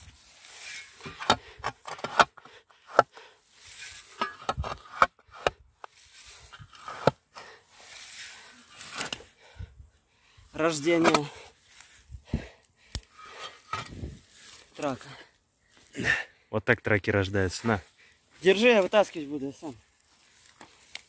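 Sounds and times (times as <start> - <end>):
spade chopping into soil: 0.8 - 3.2, 4.1 - 5.6, 6.6 - 7.2, 8.8 - 9.3, 11.0 - 11.4.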